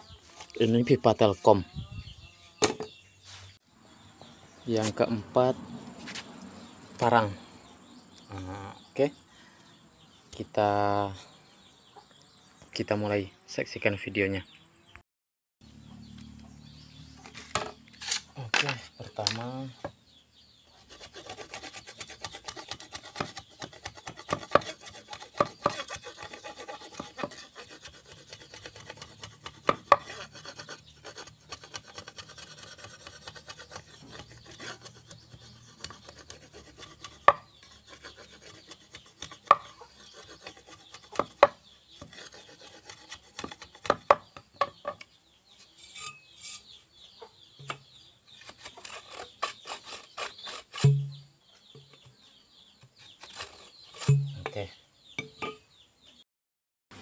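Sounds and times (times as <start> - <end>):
machete scraping wood: 17.0 - 19.5, 20.8 - 44.9, 45.5 - 46.8, 47.6 - 51.2, 52.9 - 54.6.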